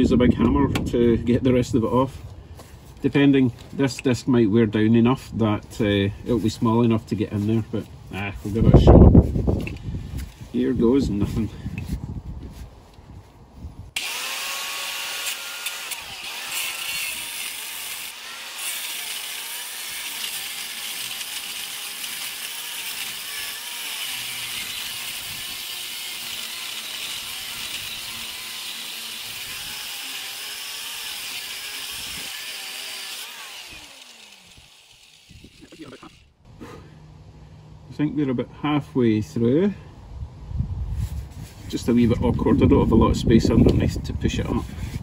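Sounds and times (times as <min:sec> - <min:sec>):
angle grinder cutting metal: 0:14.0 - 0:36.4.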